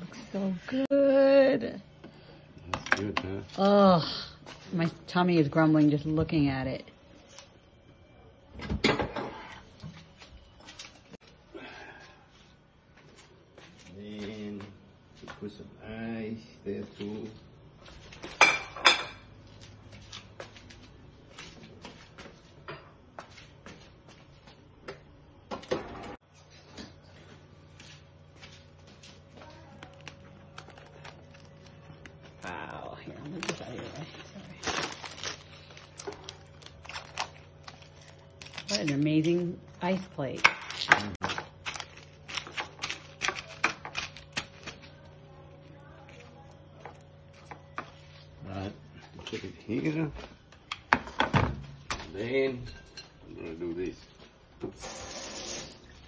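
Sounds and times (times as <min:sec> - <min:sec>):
plastic wrap crinkling: 0:28.6 - 0:48.3.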